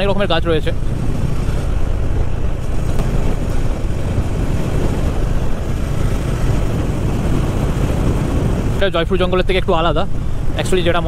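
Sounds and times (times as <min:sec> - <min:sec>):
wind and road noise: 0:00.0 - 0:11.0
motorcycle engine running: 0:00.8 - 0:08.8.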